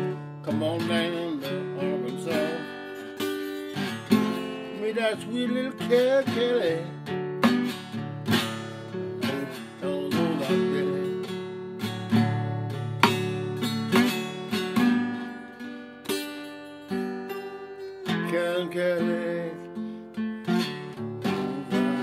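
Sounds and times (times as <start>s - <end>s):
acoustic guitar strumming: 0.0s - 22.0s.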